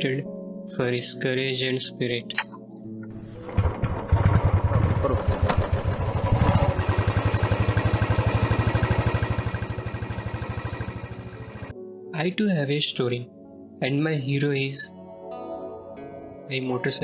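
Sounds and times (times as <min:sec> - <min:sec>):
motorcycle engine running: 0:03.2 - 0:11.7.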